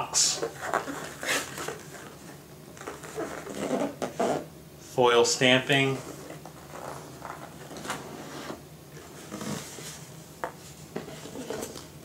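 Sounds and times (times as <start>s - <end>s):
box lid rubbing and scraping: 0.4s - 4.5s, 5.9s - 10.1s, 11.0s - 11.9s.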